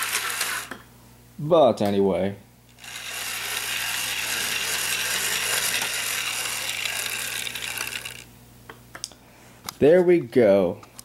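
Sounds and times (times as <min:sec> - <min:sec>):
toy train motor whirring: 0:00.0 - 0:00.8, 0:02.7 - 0:08.3.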